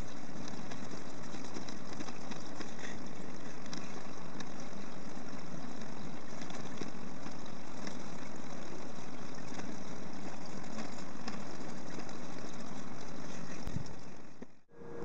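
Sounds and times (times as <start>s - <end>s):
low rumble: 14.7s - 15.0s.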